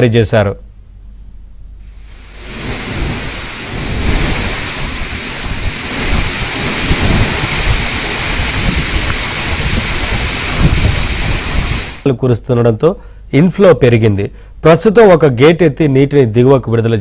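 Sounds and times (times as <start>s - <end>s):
wind buffeting microphone: 2.0s - 12.0s
wind over choppy water: 2.0s - 12.0s.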